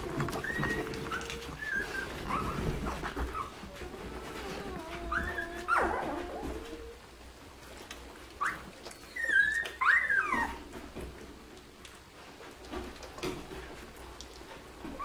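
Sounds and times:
puppies whimpering and squealing: 0:00.0 - 0:07.2, 0:08.3 - 0:11.0, 0:14.8 - 0:15.0.

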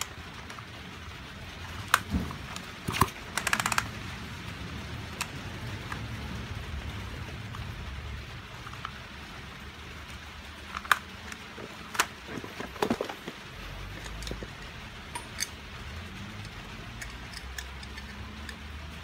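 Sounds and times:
chainsaw handling clicks and knocks: 0:10.7 - 0:15.6.

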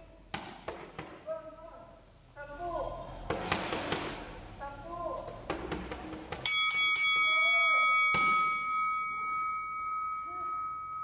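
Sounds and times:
boxing bell ringing: 0:06.4 - 0:11.0.

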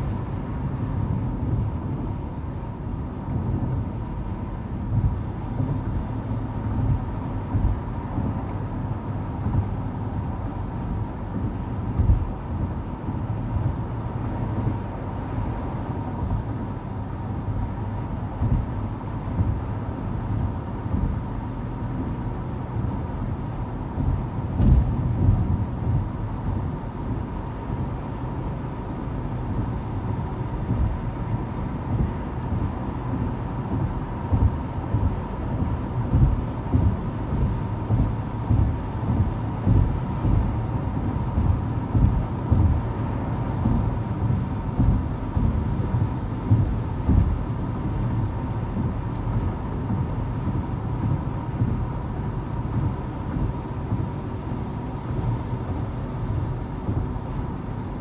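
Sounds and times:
car road noise rumble: 0:00.0 - 0:58.0.

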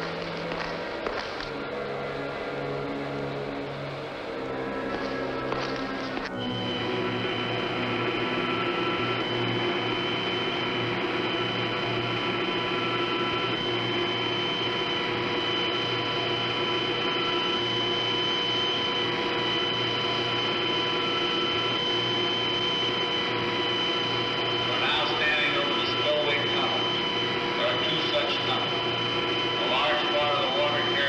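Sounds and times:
generators droning: 0:00.0 - 0:31.0
high whining tones: 0:00.0 - 0:31.0.

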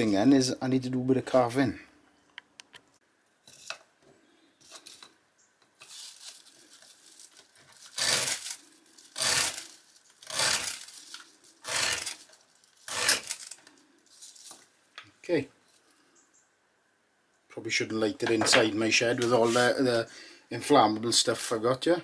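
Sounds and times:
knife scraping ferro rod: 0:08.0 - 0:13.6.

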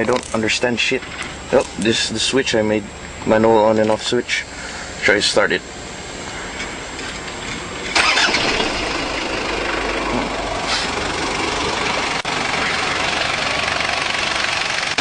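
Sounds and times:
diesel engine starting and idling: 0:07.7 - 0:15.0.

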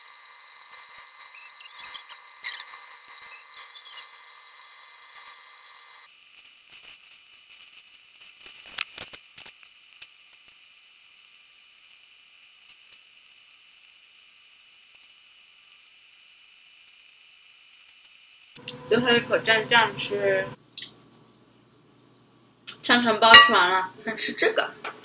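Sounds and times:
sharp clicks and crackles: 0:06.4 - 0:10.1.

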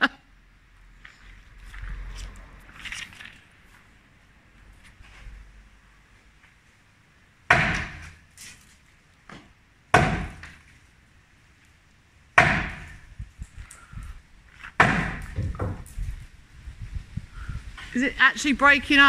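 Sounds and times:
sledgehammer striking concrete: 0:07.5 - 0:08.2, 0:09.9 - 0:10.6, 0:12.4 - 0:13.0, 0:14.8 - 0:15.8.

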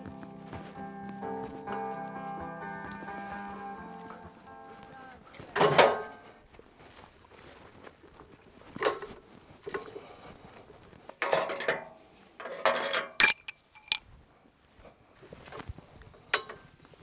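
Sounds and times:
metal parts knocking and scraping: 0:13.2 - 0:14.0
ringing metal clink: 0:13.2 - 0:14.0.

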